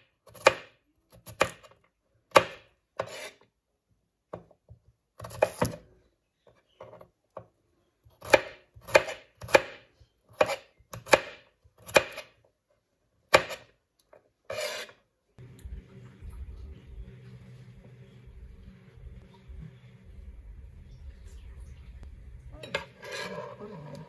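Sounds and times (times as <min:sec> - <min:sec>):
knife chopping on wooden board: 0:10.4 - 0:12.3, 0:13.3 - 0:13.7.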